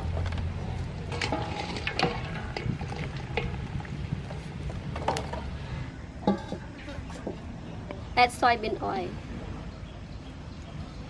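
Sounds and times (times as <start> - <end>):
wet clatters and knocks: 0.0 - 5.5.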